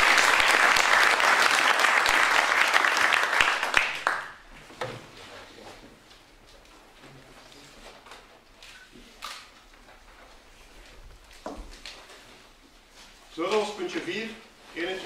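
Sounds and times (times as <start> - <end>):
people applauding: 0.0 - 4.5.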